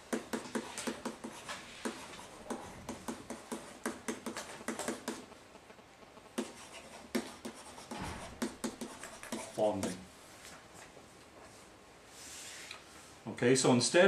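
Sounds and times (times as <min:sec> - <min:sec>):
stylus tapping and scratching on whiteboard: 0:00.0 - 0:10.1.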